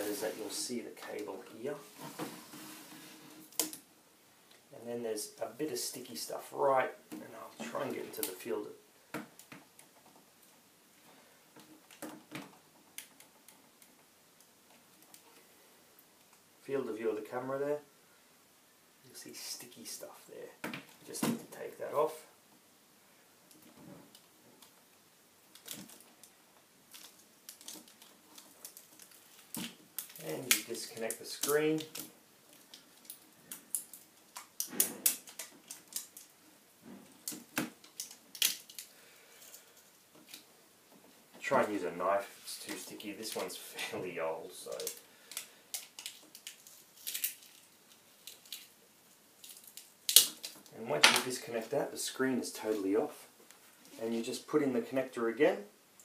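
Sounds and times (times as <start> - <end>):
small plastic clicks and crinkles: 25.4 - 36.5, 37.1 - 40.5, 44.7 - 48.8, 49.4 - 51.3.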